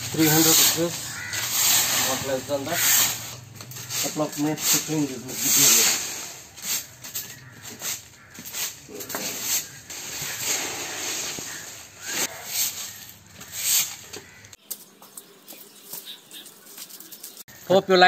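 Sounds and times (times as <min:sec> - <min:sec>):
broom sweeping leaves on concrete: 0:00.0 - 0:14.4.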